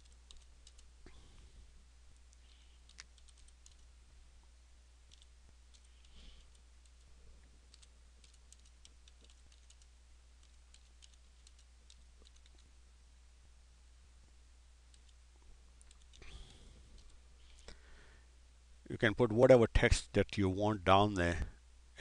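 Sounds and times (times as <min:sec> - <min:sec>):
keyboard typing: 0:00.0 - 0:00.9, 0:02.8 - 0:03.9, 0:05.1 - 0:07.1, 0:07.7 - 0:12.7, 0:14.9 - 0:15.2, 0:15.8 - 0:17.2
low steady hum: 0:00.0 - 0:22.0.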